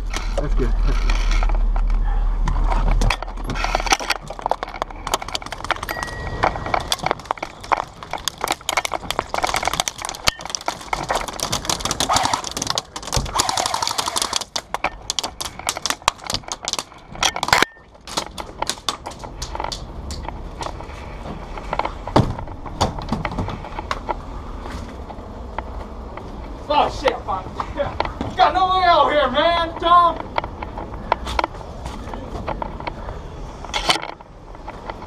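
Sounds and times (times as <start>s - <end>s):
airsoft gunfire: 11.8s - 14.7s.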